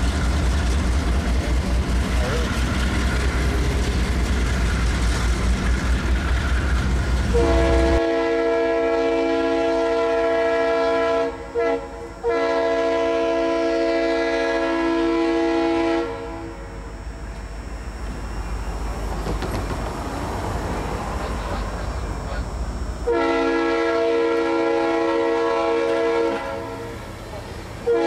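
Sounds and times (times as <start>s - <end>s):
train cars rumbling past: 0.0s - 28.0s
locomotive air horn blasts: 7.3s - 17.0s, 22.0s - 27.1s, 27.8s - 28.0s.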